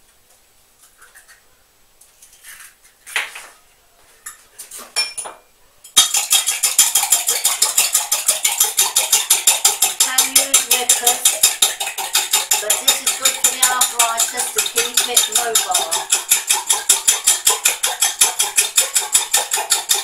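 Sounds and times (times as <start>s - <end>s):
scattered taps and clicks: 6.0s - 20.0s
whisk clinking in jug: 6.0s - 20.0s.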